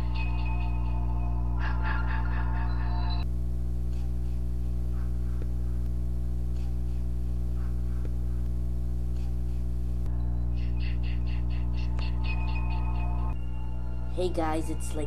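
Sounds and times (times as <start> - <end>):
eerie background music: 0.0 - 3.3, 10.1 - 15.0
steady low hum: 0.0 - 15.0.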